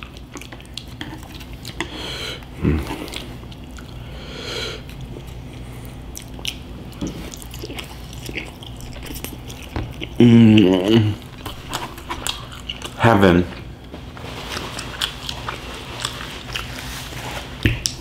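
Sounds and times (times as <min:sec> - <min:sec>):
person chewing wetly: 0:00.0 - 0:13.6, 0:14.4 - 0:18.0.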